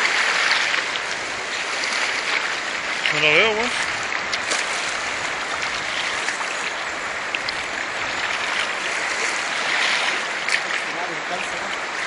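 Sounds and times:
river flowing over stones: 0:00.0 - 0:12.0.

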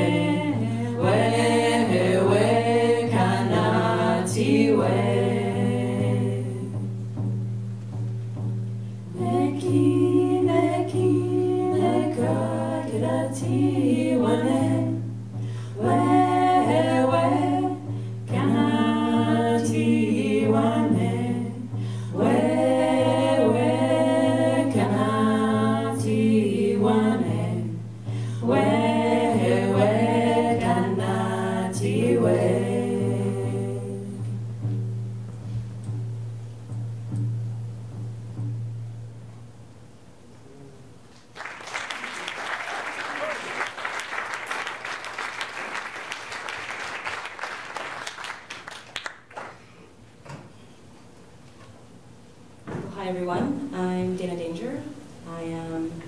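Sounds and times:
women singing together: 0:00.0 - 0:07.0, 0:09.1 - 0:34.4.

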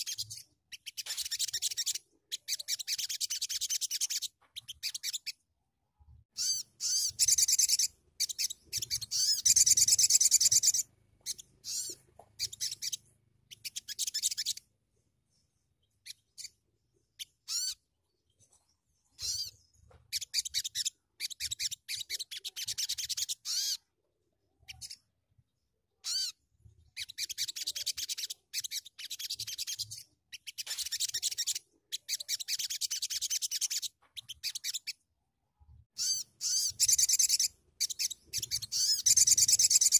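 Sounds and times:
songbird trilling chatter: 0:06.4 - 0:14.6, 0:36.0 - 0:39.9.

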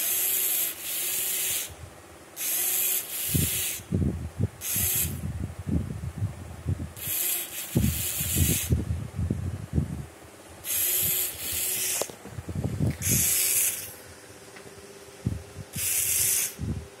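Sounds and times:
servo motors buzzing: 0:00.0 - 0:01.8, 0:02.4 - 0:04.0, 0:04.6 - 0:05.3, 0:07.0 - 0:08.8, 0:10.6 - 0:14.0, 0:15.3 - 0:16.8.

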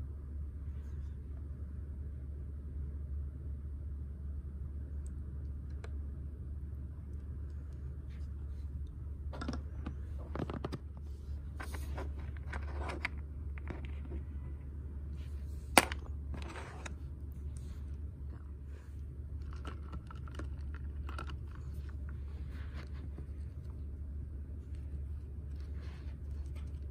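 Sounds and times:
steady low hum: 0:00.0 - 0:26.9
fingers handling plastic toy: 0:19.3 - 0:23.8.

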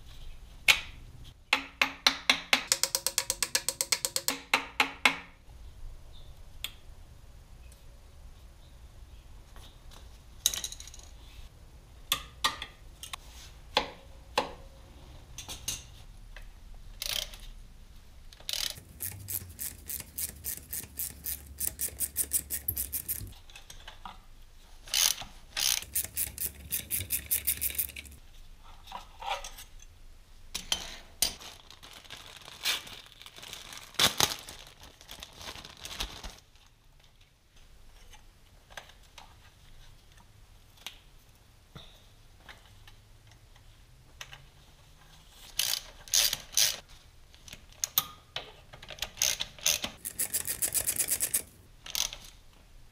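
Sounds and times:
metal tools knocking: 0:02.6 - 0:04.6
socket ratchet clicking: 0:02.7 - 0:04.4, 0:18.5 - 0:23.3, 0:25.6 - 0:28.2, 0:49.2 - 0:52.2.

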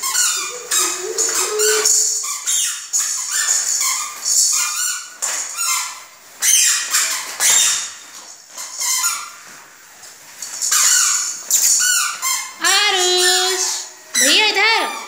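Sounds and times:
toddler squealing and shrieking: 0:00.0 - 0:02.2.

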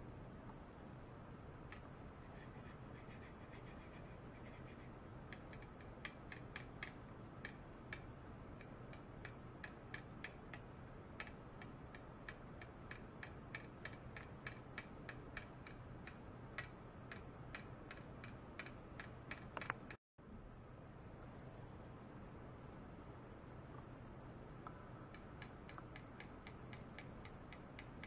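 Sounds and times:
faint small ticks: 0:05.3 - 0:20.0, 0:24.6 - 0:28.0.

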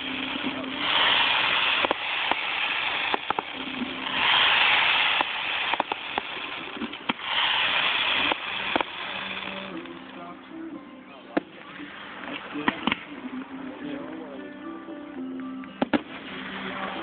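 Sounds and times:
fireworks bangs: 0:00.0 - 0:09.3
hissing crackle of fireworks: 0:00.0 - 0:10.0, 0:15.8 - 0:17.0.

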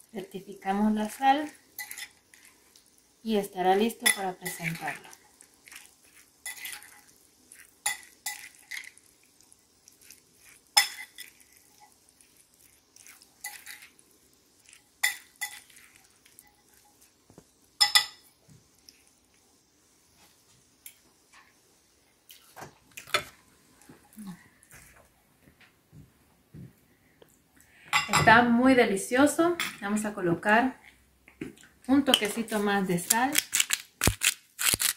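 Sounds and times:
cutlery clinking on ceramic bowl: 0:10.8 - 0:11.4, 0:17.8 - 0:18.3.

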